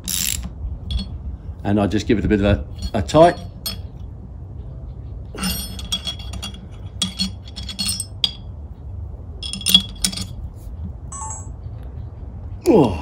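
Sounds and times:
metal key tapping metal: 0.0 - 1.2, 2.7 - 4.0, 5.4 - 8.4, 9.4 - 10.4.

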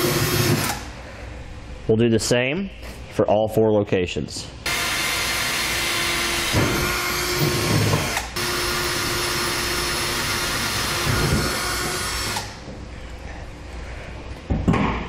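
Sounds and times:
cordless drill drilling through steel: 4.7 - 12.5.

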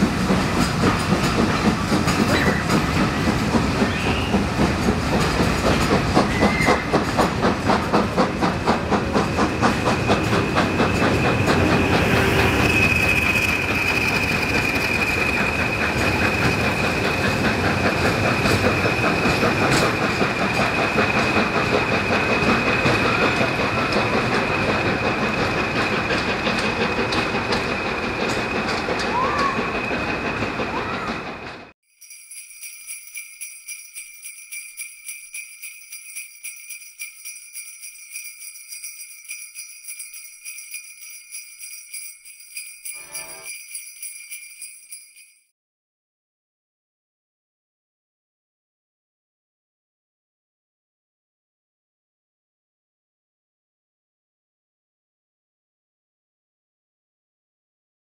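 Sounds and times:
train rumbling on rails: 0.0 - 31.8, 34.9 - 45.4
sleigh bells jingling: 31.8 - 45.5.

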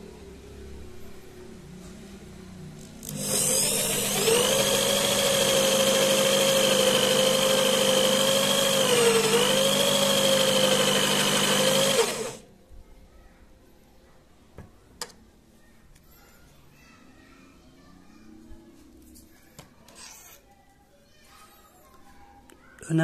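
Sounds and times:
electric drill motor whining: 3.0 - 12.4.

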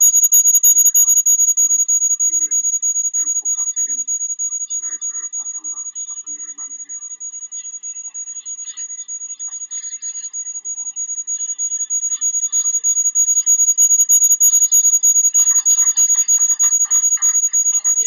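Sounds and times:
high-pitched electronic tone: 10.8 - 18.0.

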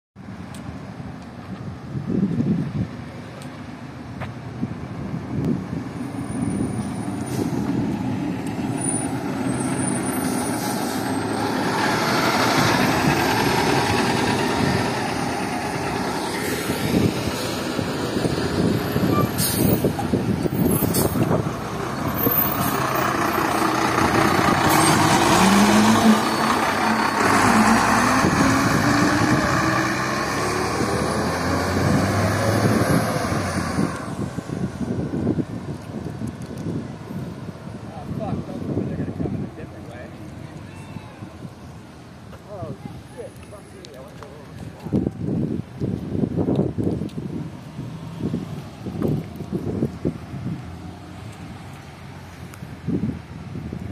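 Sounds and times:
buses driving past: 0.2 - 53.9
short air hisses: 19.4 - 19.9.

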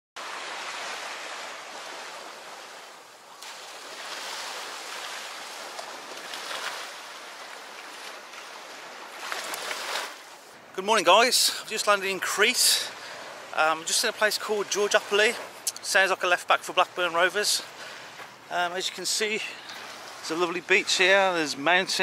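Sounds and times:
waves washing onto sand: 0.2 - 22.0.

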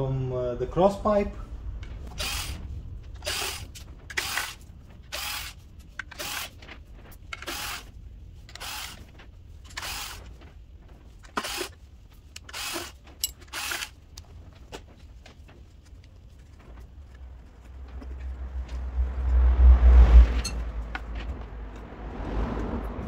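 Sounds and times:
cordless drill running: 2.1 - 2.6, 3.2 - 5.6, 6.2 - 6.5, 7.4 - 7.9, 8.5 - 9.0, 9.8 - 10.2, 11.4 - 11.8, 12.5 - 13.9.

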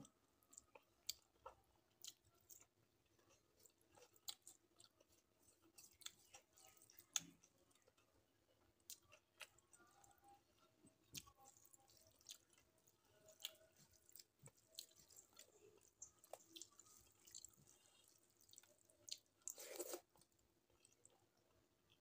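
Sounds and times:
mouthful eating sound: 11.1 - 21.0.

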